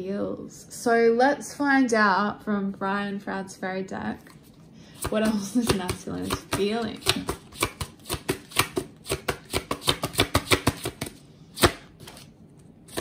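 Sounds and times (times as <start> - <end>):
cards being shuffled: 4.4 - 13.0.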